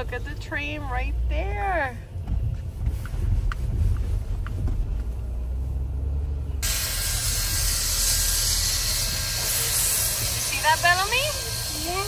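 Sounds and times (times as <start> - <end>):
low rumble: 0.0 - 11.7
locomotive venting steam: 6.6 - 12.0.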